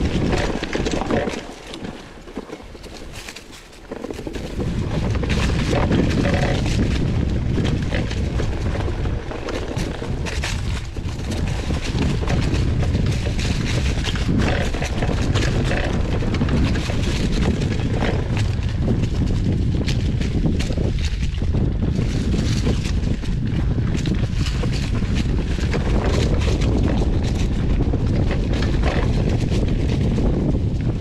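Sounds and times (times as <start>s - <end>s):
bike rattling and knocking: 0.0s - 31.0s
wind on microphone: 0.0s - 31.0s.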